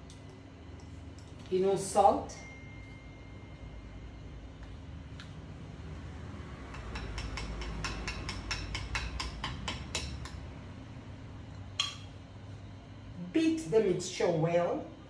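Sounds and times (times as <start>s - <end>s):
metal spoon clinking in metal bowl: 11.8s - 12.1s.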